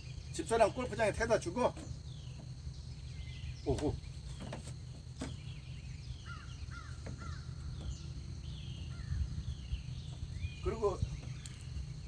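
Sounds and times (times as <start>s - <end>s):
birds calling: 0.0s - 12.0s
low steady rumble: 0.0s - 12.0s
high bird chirps: 5.2s - 12.0s.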